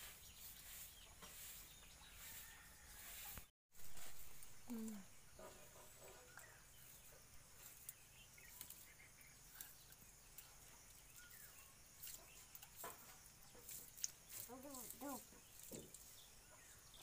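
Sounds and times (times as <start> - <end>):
faint bird chirps: 4.4 - 12.9.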